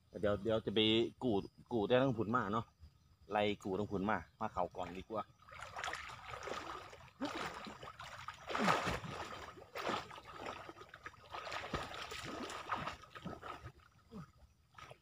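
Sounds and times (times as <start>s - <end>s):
water splashing from swimming: 5.4s - 15.0s.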